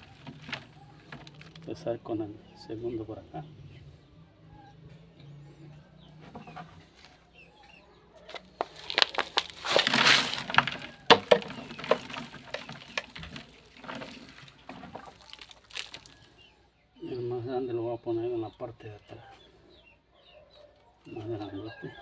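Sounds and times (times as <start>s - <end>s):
leaves rustling against microphone: 8.3s - 16.4s.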